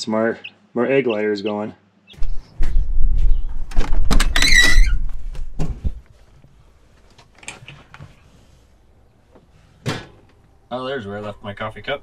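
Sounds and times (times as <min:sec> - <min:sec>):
squeaky hinge creak: 0:04.2 - 0:05.0.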